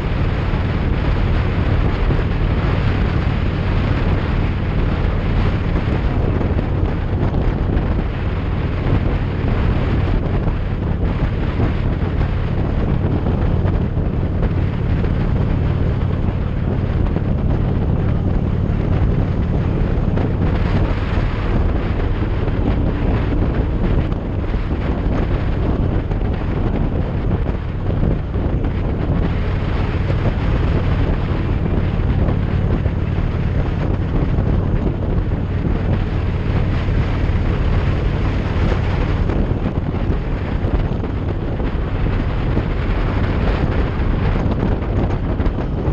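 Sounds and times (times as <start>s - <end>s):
motorcycle engine humming: 0.0s - 45.9s
wind buffeting microphone: 0.0s - 45.9s.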